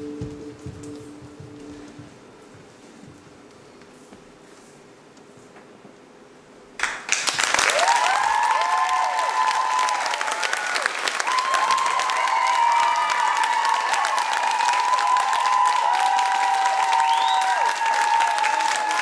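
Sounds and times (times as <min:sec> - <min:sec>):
audience applause: 0:06.8 - 0:19.0
people cheering and whooping: 0:07.6 - 0:19.0.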